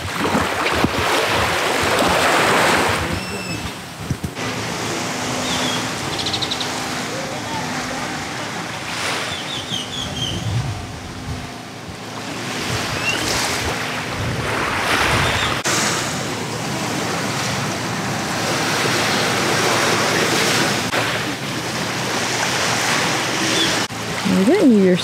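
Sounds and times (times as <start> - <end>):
wind rumble on microphone: 0.0 - 4.4, 9.0 - 16.2
small waves on beach: 0.0 - 10.3, 12.0 - 25.0.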